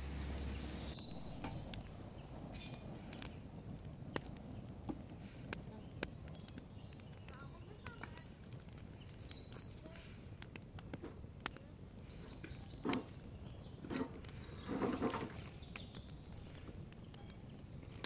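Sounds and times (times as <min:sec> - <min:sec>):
branch scraping over paving stones: 0:00.0 - 0:18.0
small birds chirping: 0:00.0 - 0:18.0.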